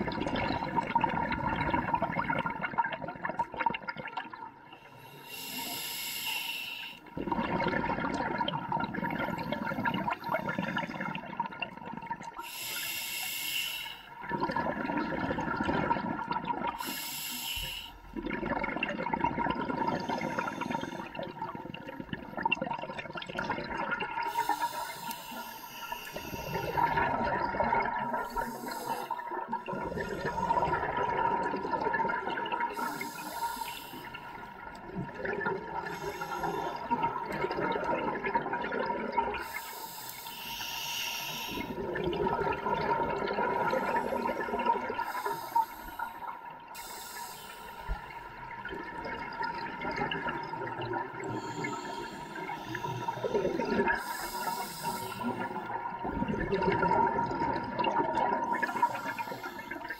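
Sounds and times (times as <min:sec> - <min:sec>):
regulator hissing inhales: 0:05.0 - 0:07.1, 0:12.4 - 0:14.1, 0:16.8 - 0:18.0, 0:20.0 - 0:21.2, 0:24.3 - 0:26.8, 0:28.2 - 0:29.2, 0:32.7 - 0:34.2, 0:35.9 - 0:36.9, 0:39.4 - 0:41.8, 0:45.0 - 0:48.2, 0:51.3 - 0:55.7, 0:58.6 - 0:59.9
bubbling exhales: 0:07.2 - 0:13.5, 0:14.2 - 0:59.9.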